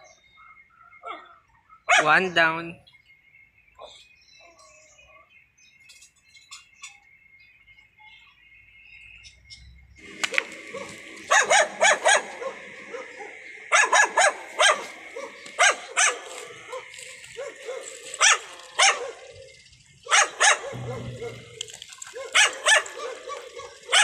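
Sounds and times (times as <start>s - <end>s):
dog barking: 1.0s - 2.2s, 10.7s - 19.4s, 20.1s - 24.0s.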